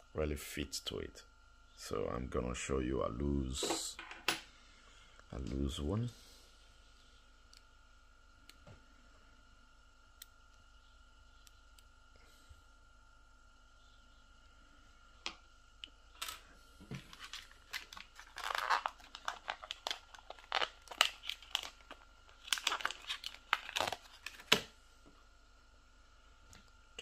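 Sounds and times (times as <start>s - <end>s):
plastic packaging crinkling: 16.2s - 24.7s.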